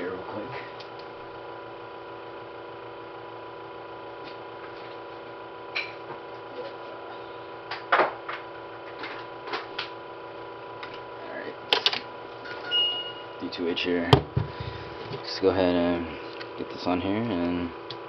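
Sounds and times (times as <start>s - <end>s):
faint electrical hum: 0.0s - 18.0s
thin high tone: 12.4s - 13.5s.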